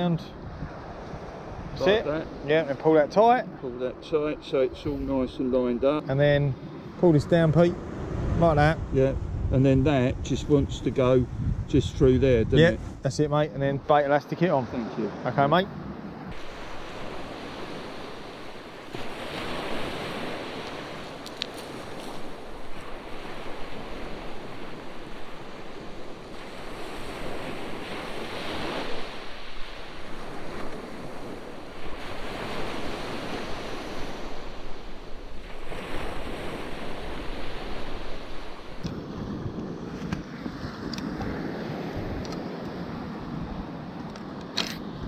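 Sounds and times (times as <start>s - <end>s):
wind on microphone: 0.0s - 2.6s, 4.6s - 13.3s, 15.7s - 45.0s
sea waves breaking on beach: 0.0s - 9.4s, 14.2s - 45.0s.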